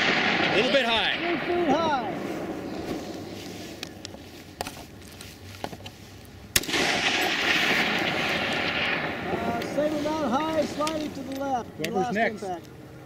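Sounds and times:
rifle shot: 0.0 - 3.2, 6.5 - 9.8
steady hiss: 0.0 - 12.8.

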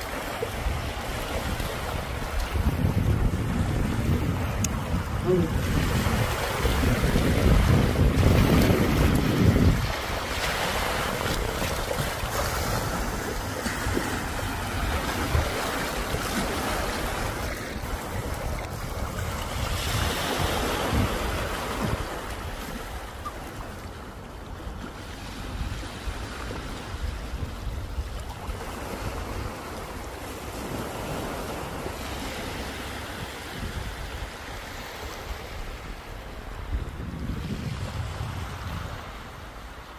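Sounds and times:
wind buffeting microphone: 0.0 - 23.3, 25.4 - 39.9
small waves lapping on rocks: 0.0 - 39.9.

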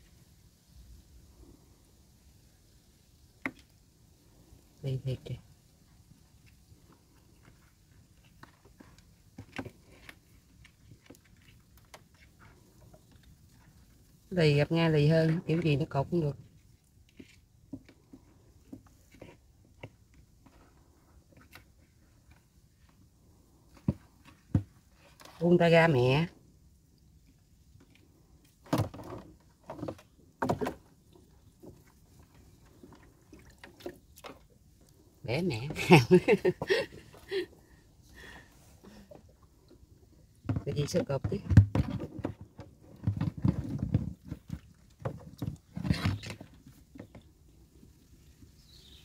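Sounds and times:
knocks and scrapes against boat hull: 16.4 - 23.0, 23.7 - 25.4, 27.8 - 34.6, 40.4 - 47.4.

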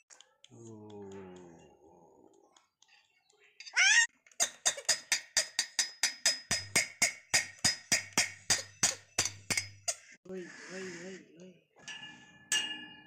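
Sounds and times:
steel plate clanging: 11.8 - 13.0.

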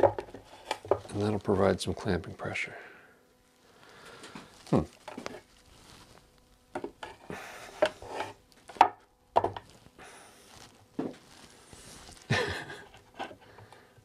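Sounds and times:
scraping and rubbing: 4.5 - 8.5.

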